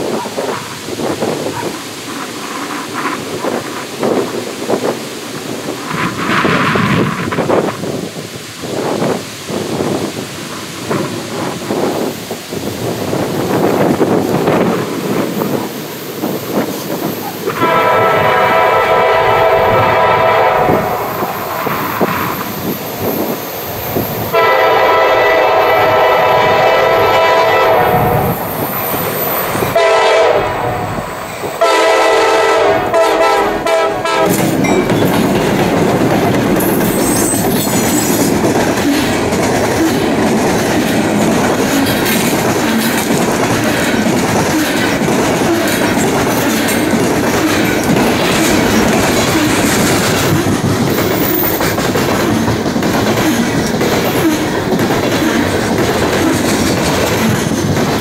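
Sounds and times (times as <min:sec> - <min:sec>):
locomotive air horn blasts: 0:17.5 - 0:21.1, 0:24.3 - 0:28.3, 0:29.8 - 0:31.0, 0:31.6 - 0:34.5
train wheels clacking on rail joints: 0:31.3 - 0:58.0.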